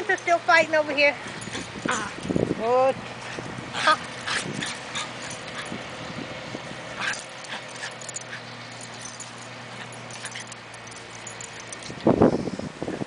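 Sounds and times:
dogs play-fighting: 0:01.2 - 0:02.4, 0:03.1 - 0:06.0, 0:06.8 - 0:12.0.

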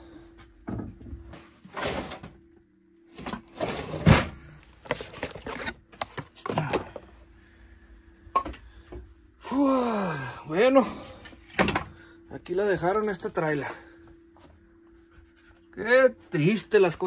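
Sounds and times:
hands rustling papers and cardboard: 0:04.7 - 0:06.7.

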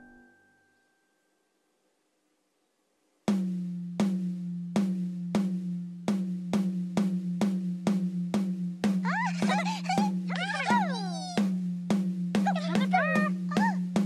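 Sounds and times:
drum struck with drumstick: 0:03.3 - 0:14.0
squeaky high voices: 0:09.0 - 0:11.5, 0:12.4 - 0:14.0.

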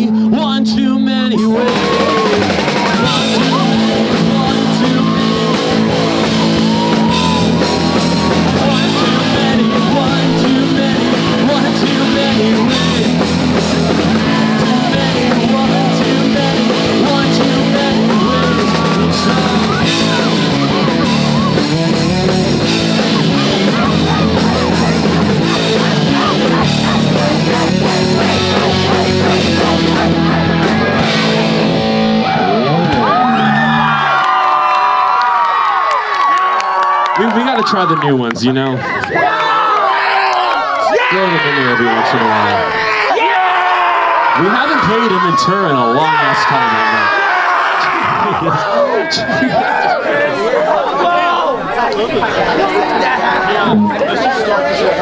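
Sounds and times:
live rock band playing: 0:00.0 - 0:34.6.

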